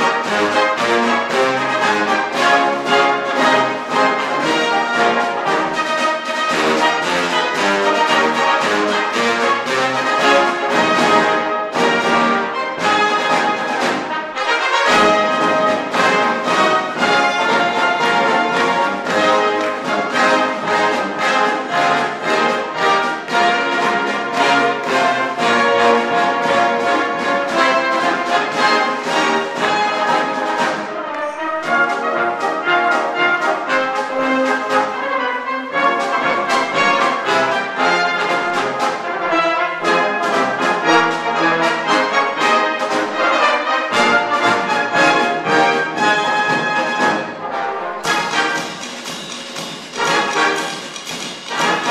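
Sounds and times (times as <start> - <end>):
percussion steady beat: 0.0 - 47.4, 48.0 - 51.9
brass band playing: 0.0 - 51.9.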